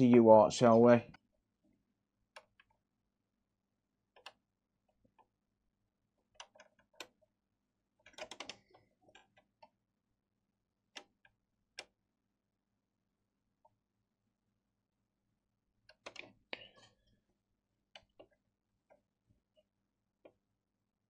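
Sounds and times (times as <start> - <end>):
soldering clicks and taps: 4.1 - 5.3.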